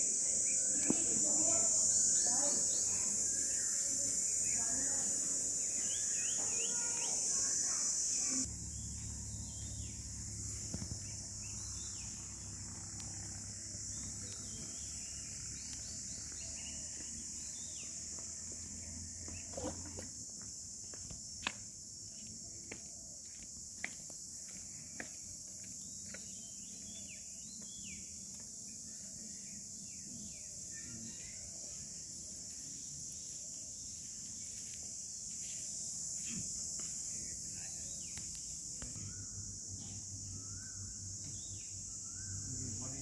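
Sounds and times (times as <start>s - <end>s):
insects droning: 0.0s - 43.0s
bird chirps: 0.2s - 18.0s, 37.6s - 43.0s.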